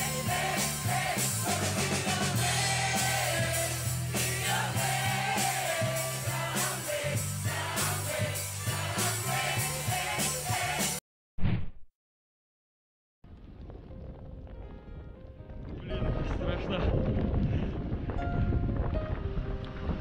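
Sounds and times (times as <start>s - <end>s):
band playing pop-rock music: 0.0s - 11.0s
bass line: 0.0s - 11.0s
drums with cymbals: 0.0s - 11.0s.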